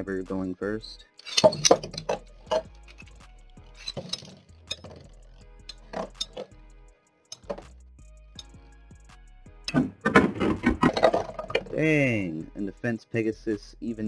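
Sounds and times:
background music with steady beat: 0.0s - 14.0s
spinning tops clinking: 1.2s - 6.5s.

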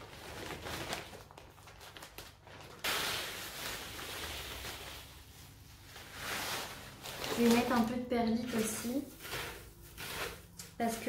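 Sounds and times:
bag of soil rustling: 0.0s - 11.0s
rustling and scraping of potting soil: 2.3s - 11.0s.

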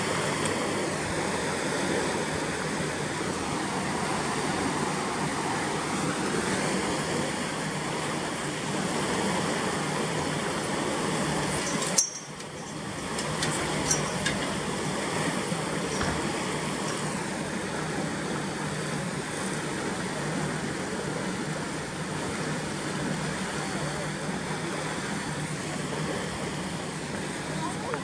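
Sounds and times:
water rushing through lock gate: 0.0s - 28.0s.

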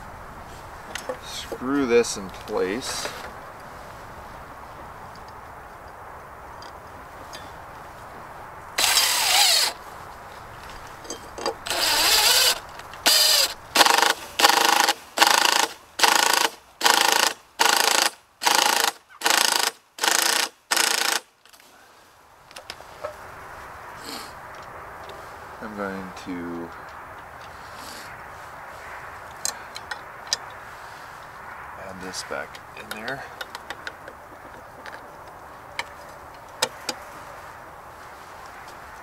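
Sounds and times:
cordless drill driving screw into wood: 8.8s - 9.8s, 11.7s - 21.3s.

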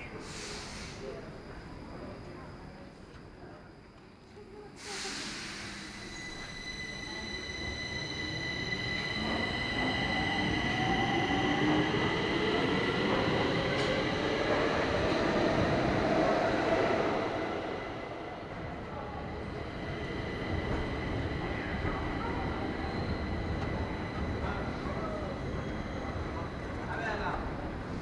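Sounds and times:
high squeal of train: 0.0s - 28.0s
air brake hiss: 0.2s - 1.1s, 4.8s - 6.2s.

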